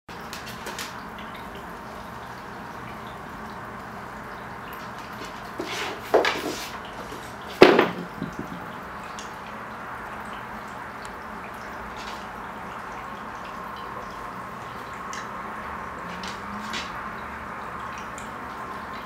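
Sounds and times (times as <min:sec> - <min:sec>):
aquarium water trickling: 0:00.1 - 0:19.0.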